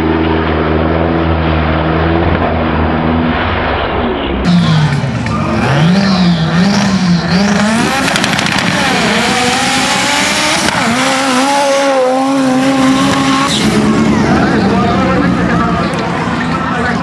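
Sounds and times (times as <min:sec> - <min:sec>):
turbocharged engine revving: 0:04.5 - 0:17.0.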